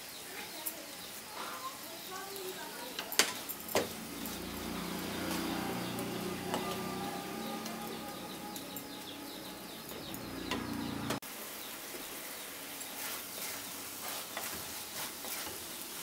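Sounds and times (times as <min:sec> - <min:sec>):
coconut and sugar sizzling in pan: 0:00.0 - 0:16.0
wooden spatula scraping pan: 0:12.9 - 0:16.0.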